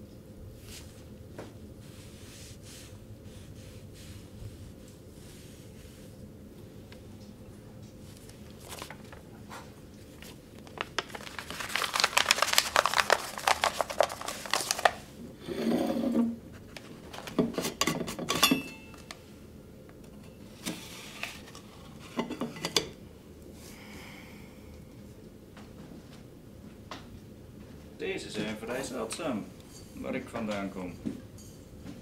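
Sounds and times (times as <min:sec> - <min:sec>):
paper crinkling: 0:07.9 - 0:15.1
metallic ring: 0:18.4 - 0:19.0.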